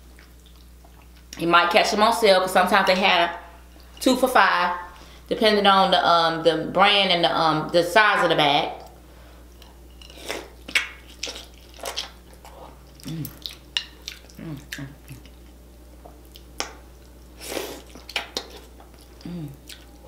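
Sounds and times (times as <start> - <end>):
wet chewing and lip smacks: 10.4 - 15.4, 17.8 - 20.0
person humming: 13.0 - 13.4, 14.4 - 15.0, 19.2 - 19.6.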